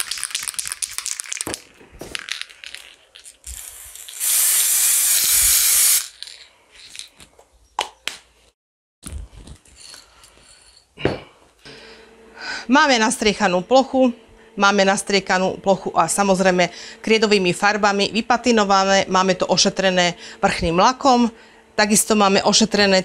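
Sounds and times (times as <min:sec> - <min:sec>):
aerosol spray can hissing: 0:03.5 - 0:06.2.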